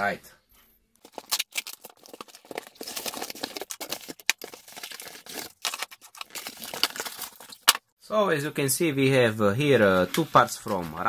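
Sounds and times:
packaging rustling and crinkling: 1.0s - 7.8s.

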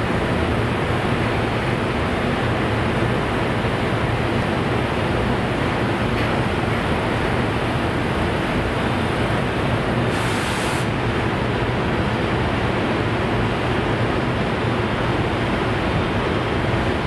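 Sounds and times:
freight train rushing noise: 0.0s - 17.0s
brief hiss: 10.1s - 11.0s.

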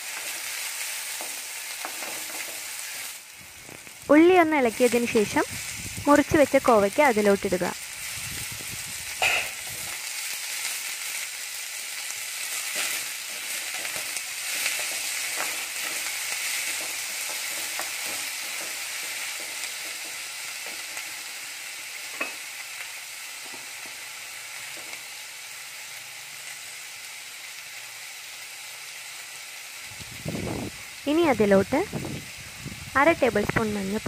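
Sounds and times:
vegetables sizzling in oil: 0.0s - 34.0s.

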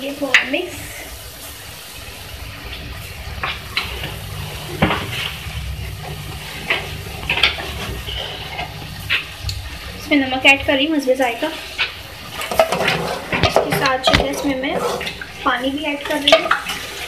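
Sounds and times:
low steady rumble: 0.9s - 11.1s
utensils clinking on metal pot: 12.4s - 17.0s.

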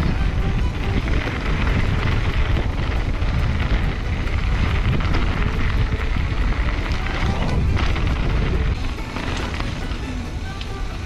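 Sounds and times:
bike rattling over rough ground: 0.0s - 11.0s
wind buffeting camera: 0.0s - 11.0s.

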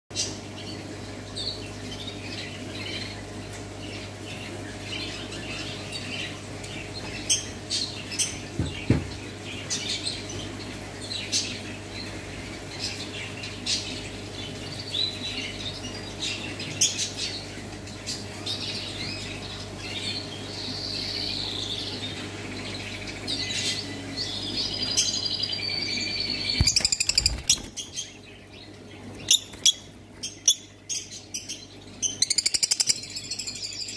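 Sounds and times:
bird wingbeats: 26.6s - 27.8s.

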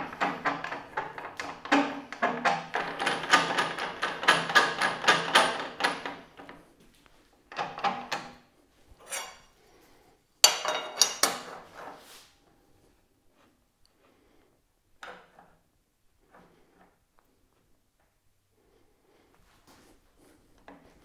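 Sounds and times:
metal saw fence clanking and clicking: 0.0s - 6.5s, 10.5s - 11.6s.

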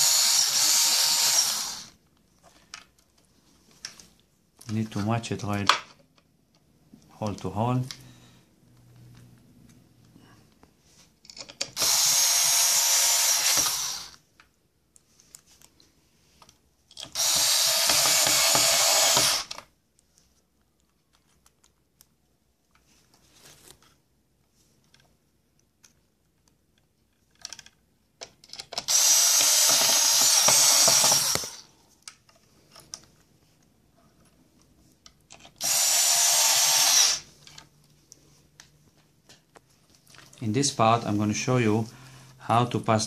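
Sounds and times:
cordless screwdriver driving screws: 0.0s - 2.0s, 11.6s - 14.2s, 17.0s - 19.6s, 28.7s - 31.6s, 35.3s - 37.3s.

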